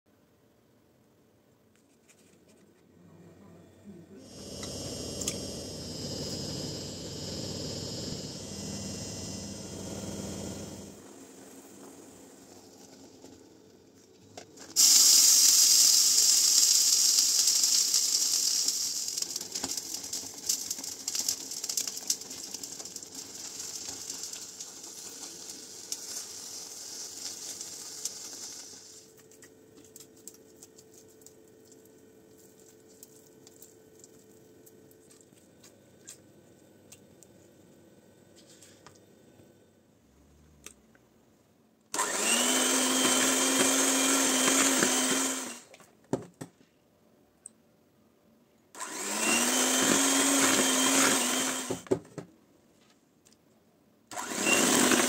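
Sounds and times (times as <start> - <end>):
butter and water sizzling in pan: 14.8 - 29.1.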